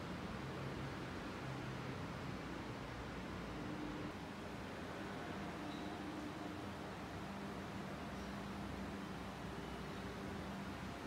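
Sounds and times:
room tone hiss: 0:00.0 - 0:11.0.

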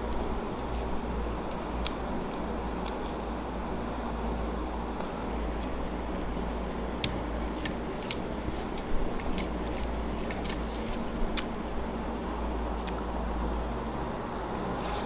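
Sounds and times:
fingers mixing wet food: 0:05.0 - 0:13.9.

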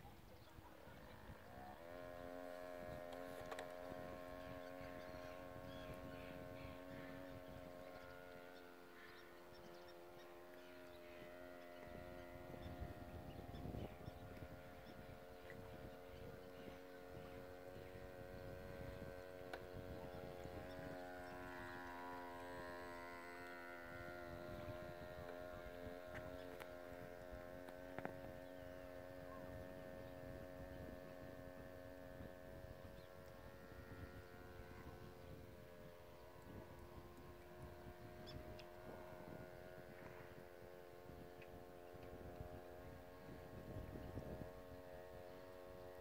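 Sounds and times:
electric motor whine: 0:00.0 - 0:46.0
low uneven rumble: 0:00.0 - 0:46.0
faint clicks: 0:03.1 - 0:03.8.

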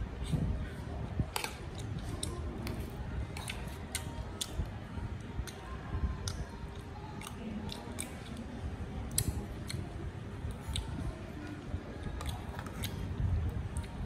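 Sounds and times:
metal spoon clicks and crunches: 0:09.1 - 0:09.8, 0:10.5 - 0:11.6.

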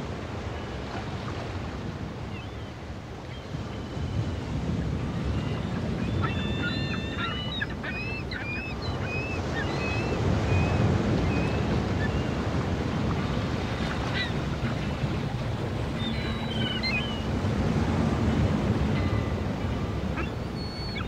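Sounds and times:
birds chirping: 0:05.2 - 0:12.4, 0:13.7 - 0:21.0.

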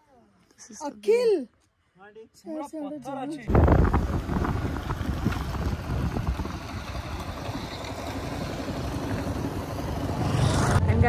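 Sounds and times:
wind buffeting microphone: 0:03.5 - 0:11.0.

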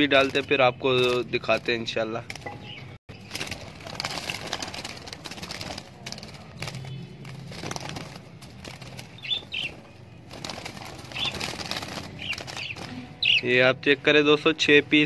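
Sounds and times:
birds flapping in a wire cage: 0:00.0 - 0:13.4
high budgie calls: 0:09.1 - 0:10.2, 0:11.1 - 0:11.4, 0:12.1 - 0:13.5.

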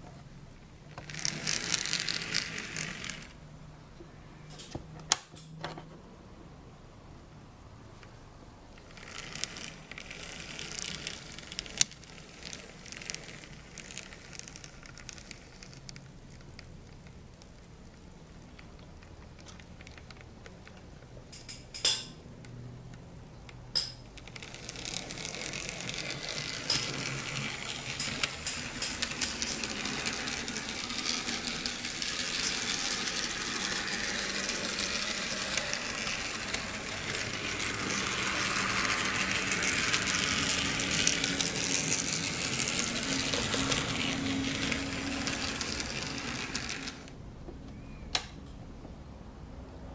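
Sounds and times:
small motor and gears whirring: 0:01.0 - 0:03.4, 0:08.8 - 0:20.8, 0:24.2 - 0:47.2.

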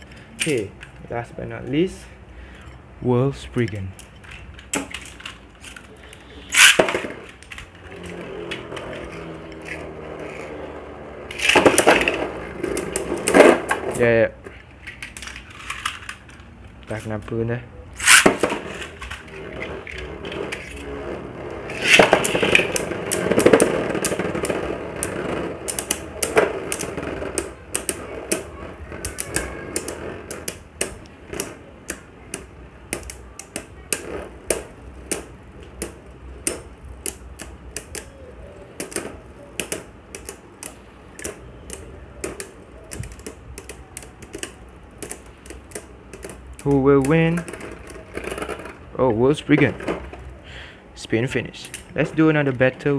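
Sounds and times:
spinning tops clicking together: 0:06.5 - 0:10.6, 0:18.0 - 0:20.9, 0:21.7 - 0:34.2.

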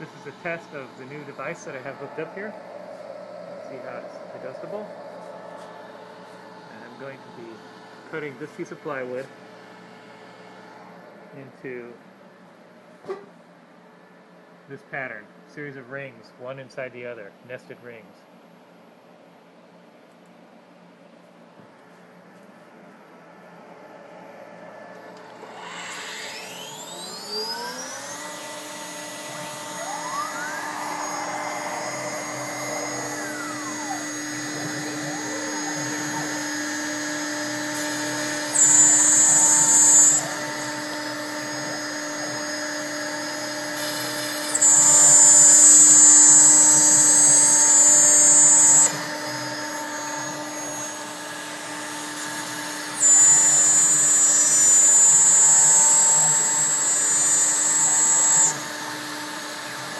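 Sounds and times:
drive motors whining: 0:00.0 - 0:09.3, 0:23.2 - 0:59.9
router spindle whine: 0:00.0 - 0:11.4, 0:23.2 - 0:59.9
bit cutting into plywood: 0:25.2 - 0:41.3, 0:43.8 - 0:51.0, 0:51.7 - 0:59.0.

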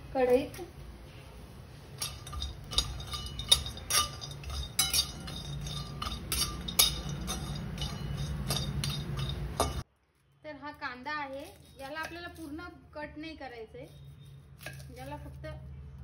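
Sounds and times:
metal spatula scraping metal pan: 0:01.9 - 0:09.8.

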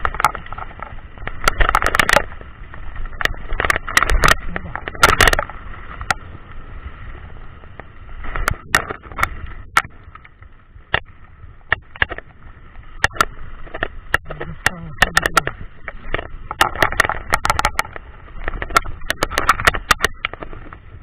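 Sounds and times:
bike knocks and rattles: 0:00.0 - 0:06.4, 0:10.8 - 0:21.0
bike tyres rolling over dirt: 0:00.0 - 0:21.0.

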